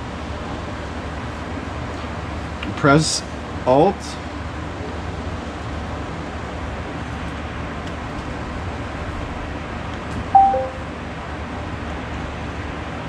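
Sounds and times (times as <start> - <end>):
steady hum and hiss: 0.0 - 13.0
two-note falling beep: 10.4 - 10.9.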